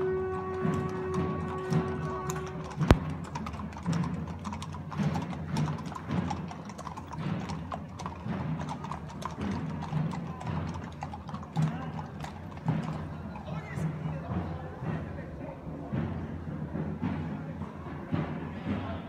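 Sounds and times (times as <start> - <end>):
held musical notes: 0.0 - 3.0
hooves clip-clopping on pavement: 0.0 - 19.0.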